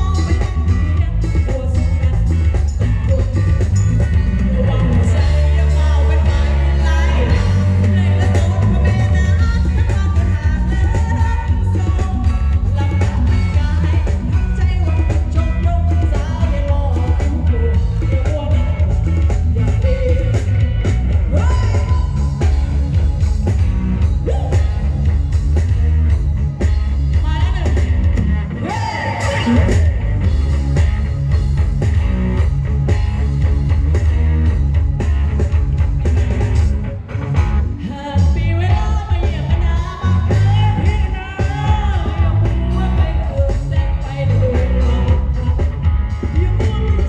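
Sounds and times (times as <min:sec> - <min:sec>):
electric guitar: 0:00.0 - 0:47.0
heavy pulsing bass: 0:00.0 - 0:47.0
live band music through speakers: 0:00.0 - 0:47.0
man singing: 0:04.2 - 0:22.4.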